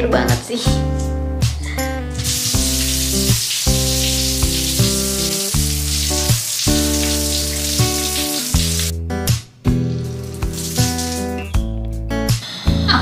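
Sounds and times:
background music: 0:00.0 - 0:13.0
shower water spraying on tiles: 0:02.1 - 0:08.9, 0:10.0 - 0:11.6.

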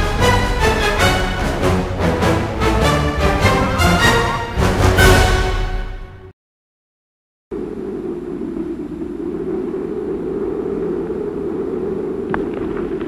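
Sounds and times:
rumbling drone: 0:07.5 - 0:13.0
sharp crackles: 0:08.0 - 0:13.0.

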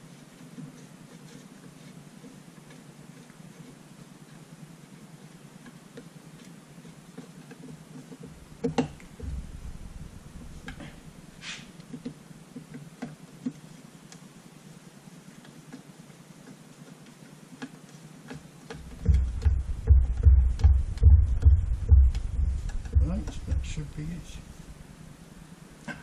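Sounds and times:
low steady hum: 0:08.2 - 0:12.5, 0:18.8 - 0:26.0
sharp knock: 0:19.0 - 0:24.0.

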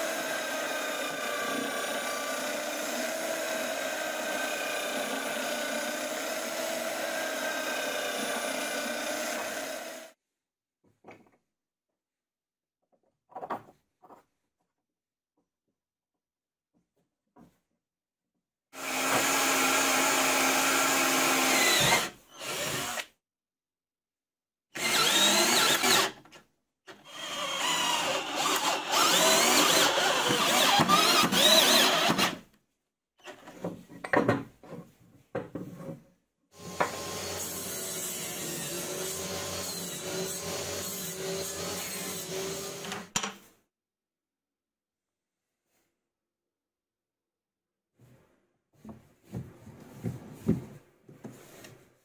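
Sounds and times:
power tools working wood: 0:00.0 - 0:10.2, 0:18.8 - 0:23.1, 0:24.8 - 0:26.2, 0:27.0 - 0:32.4, 0:36.6 - 0:43.1.

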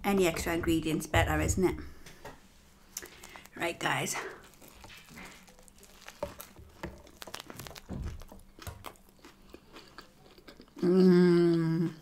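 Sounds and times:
chewing with crunches and mouth clicks: 0:03.0 - 0:03.6, 0:04.3 - 0:12.0
person humming mmm: 0:10.8 - 0:12.0.

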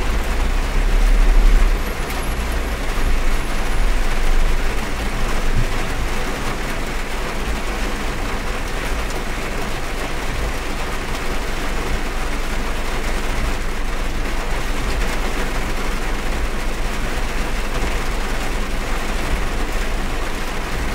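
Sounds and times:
heavy rain on car roof: 0:00.0 - 0:20.9.

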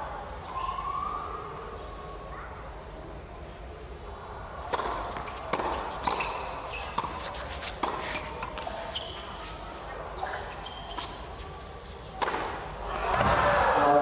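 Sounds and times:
racket striking tennis ball: 0:04.7 - 0:08.8, 0:12.0 - 0:13.4
tennis ball bouncing: 0:04.7 - 0:09.1, 0:11.8 - 0:13.3.

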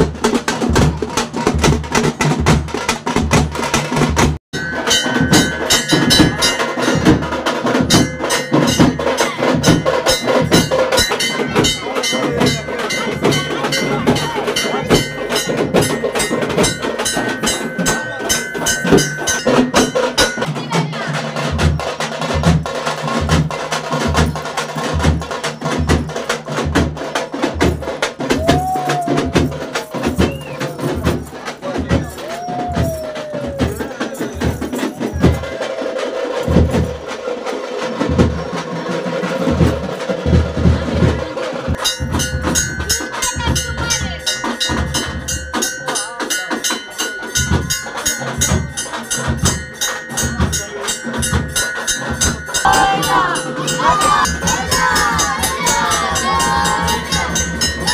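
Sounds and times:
drums playing a steady beat: 0:00.0 - 0:57.9.

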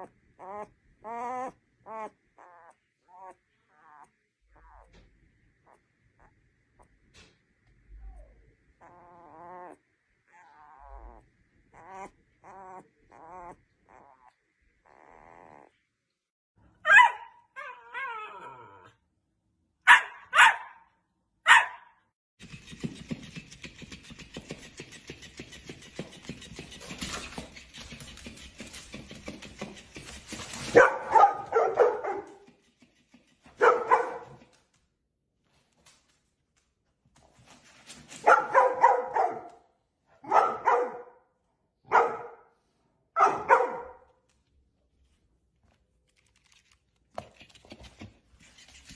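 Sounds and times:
puppy squeaking and crying: 0:00.0 - 0:05.0, 0:08.8 - 0:15.8, 0:16.8 - 0:19.0
dog barking: 0:16.8 - 0:17.8, 0:19.8 - 0:22.0, 0:30.7 - 0:32.5, 0:33.6 - 0:34.4, 0:38.2 - 0:42.6, 0:43.2 - 0:44.1.

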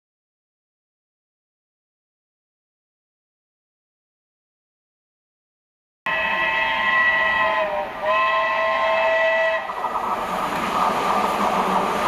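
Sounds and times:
steam locomotive whistle: 0:06.1 - 0:10.0
train running noise: 0:06.1 - 0:12.0.

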